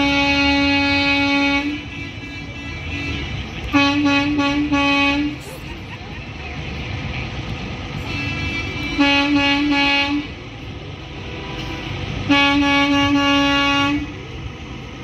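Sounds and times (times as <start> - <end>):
vehicle horn blasts: 0.0 - 5.4, 8.0 - 10.4, 12.3 - 14.1.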